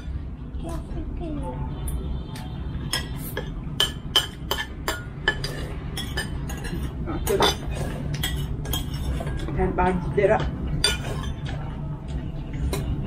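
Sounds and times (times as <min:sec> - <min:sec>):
cutlery clinking against plates: 0:02.9 - 0:09.6, 0:10.4 - 0:13.0.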